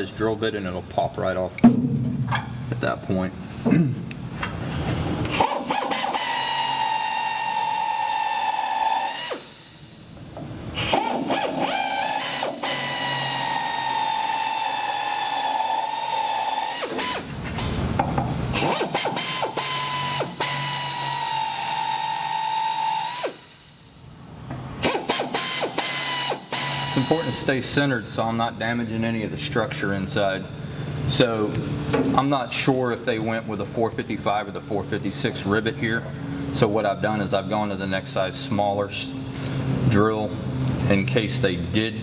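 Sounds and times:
pneumatic drill whining: 5.2 - 10.0, 10.7 - 17.8, 18.5 - 23.8, 24.8 - 27.5.

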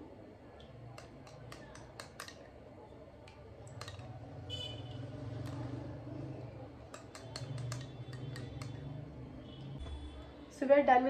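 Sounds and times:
plastic spoon stirring: 6.9 - 8.7
spoon clicking on container: 6.9 - 8.8.

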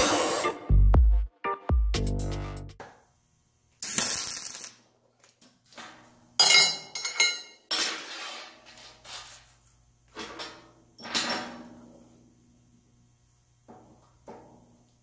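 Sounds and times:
welding arc crackle: 3.8 - 4.9
metal tools clattering on table: 5.8 - 9.4, 10.1 - 11.7.

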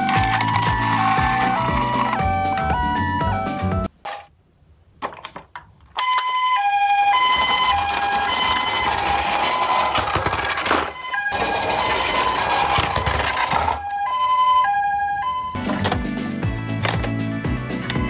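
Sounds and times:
toy wheels rolling on wood: 0.0 - 2.2, 7.0 - 13.8
toy two-tone siren: 0.0 - 3.7, 6.0 - 15.6.

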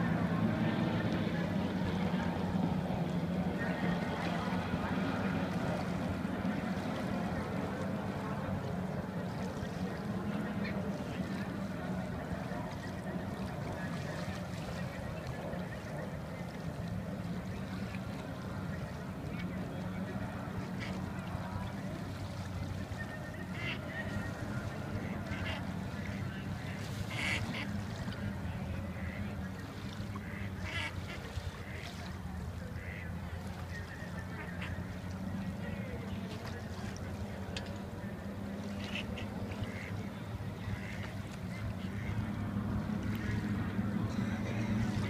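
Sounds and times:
ducks quacking: 17.5 - 22.0, 22.7 - 45.0.

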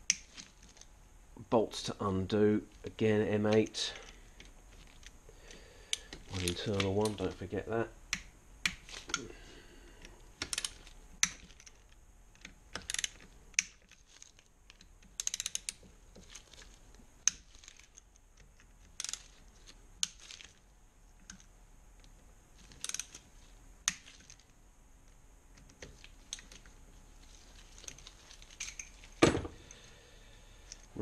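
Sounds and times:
socket ratchet clicking: 10.4 - 11.7, 12.4 - 13.9, 14.8 - 15.8, 22.8 - 23.2.

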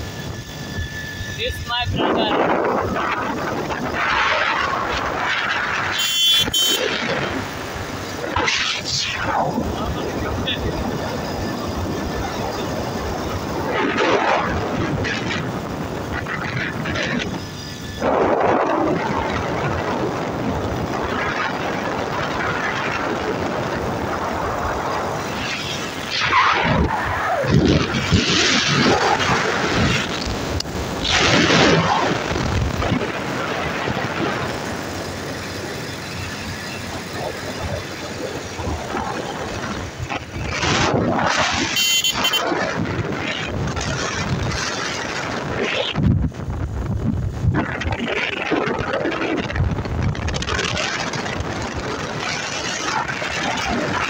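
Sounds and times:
motorbike road noise: 0.0 - 54.0
wind rush: 0.0 - 54.0
men's voices: 1.4 - 2.4, 9.5 - 12.8.

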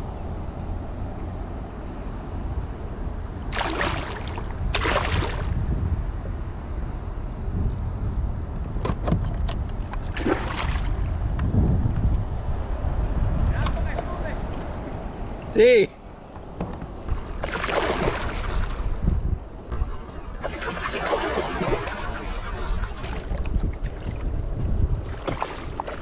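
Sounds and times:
fish splashing in water: 3.5 - 5.6, 10.0 - 11.2, 17.1 - 19.0, 19.8 - 24.4, 25.0 - 26.0
low rumble: 18.6 - 25.1.

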